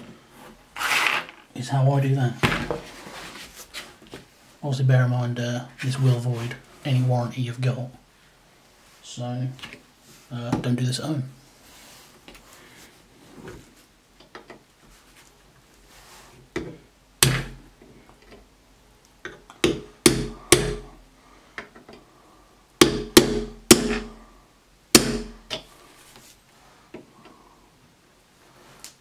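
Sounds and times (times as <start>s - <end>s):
hammer tapping metal punch: 19.3s - 20.9s, 22.8s - 24.2s, 25.0s - 25.7s.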